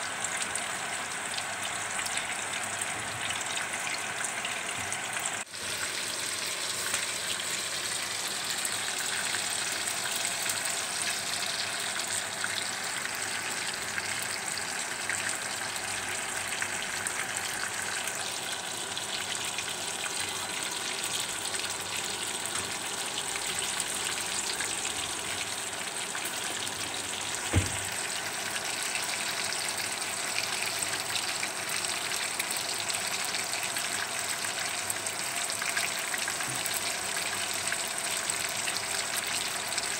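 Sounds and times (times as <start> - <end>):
fish frying in hot oil: 0.0 - 39.9
short thump: 27.5 - 27.9.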